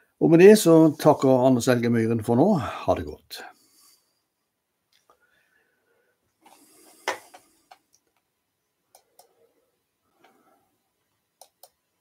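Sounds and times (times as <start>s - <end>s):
computer mouse clicks: 8.9s - 9.4s, 11.4s - 11.8s.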